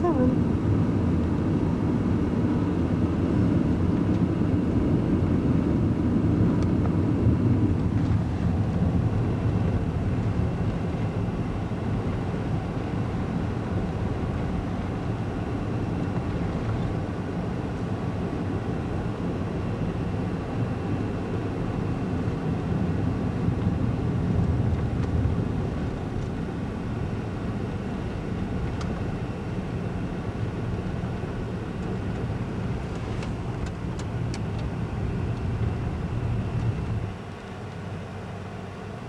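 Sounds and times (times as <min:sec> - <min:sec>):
car engine and tyres rumbling: 0:00.0 - 0:39.0.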